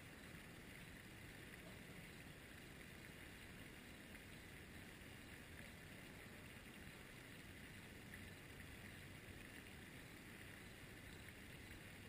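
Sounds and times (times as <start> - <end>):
faint outdoor hiss: 0.0 - 12.0.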